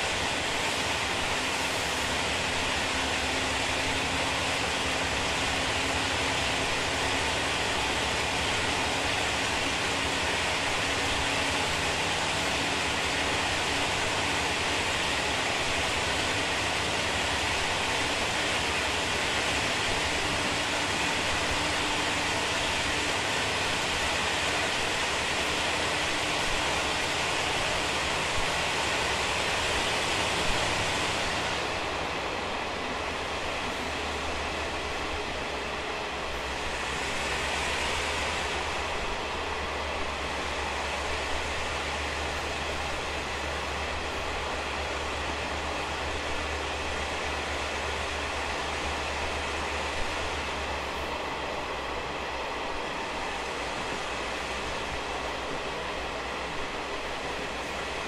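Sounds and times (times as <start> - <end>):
train wheel and rail noise: 0.0 - 58.0.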